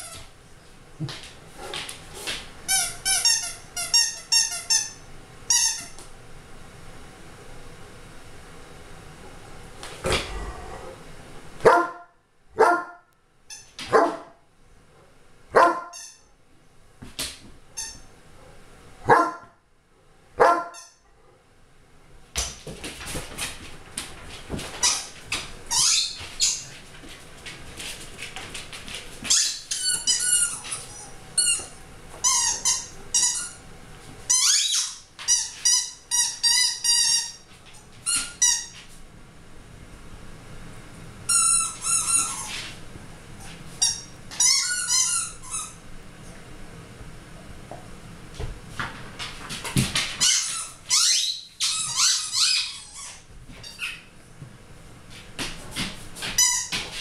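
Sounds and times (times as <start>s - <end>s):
dog barking: 11.6s - 13.0s, 13.9s - 14.4s, 15.5s - 16.0s, 18.4s - 19.6s, 20.4s - 20.8s.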